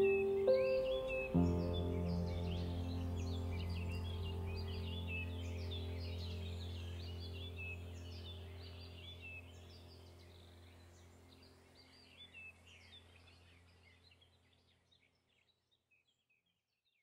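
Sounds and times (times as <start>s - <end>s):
low steady drone: 0.0s - 12.8s
faint birdsong: 0.0s - 17.0s.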